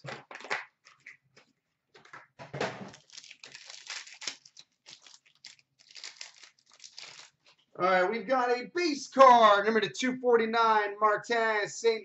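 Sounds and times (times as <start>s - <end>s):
foil pack crinkling and tearing: 2.9s - 7.7s.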